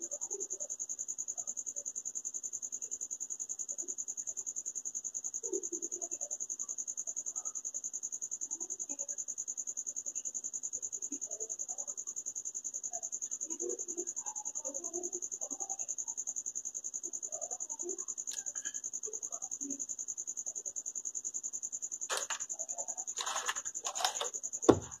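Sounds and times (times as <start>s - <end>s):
plastic wrapper crinkling: 22.1s - 22.4s, 23.1s - 24.4s
hands handling cookies: 22.1s - 25.0s.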